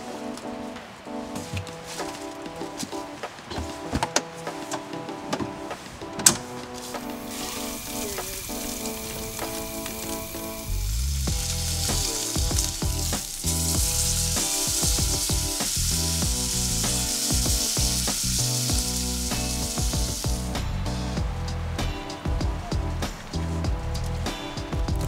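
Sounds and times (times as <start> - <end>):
background music: 0.0 - 25.0
steak sizzling in frying pan: 6.8 - 20.6.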